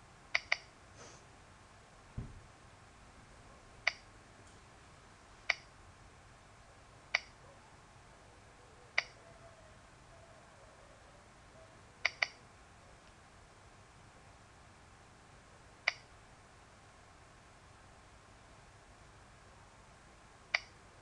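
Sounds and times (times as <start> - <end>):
dull low thump: 2.2 - 2.5
mouse button clicks: 12.1 - 12.4.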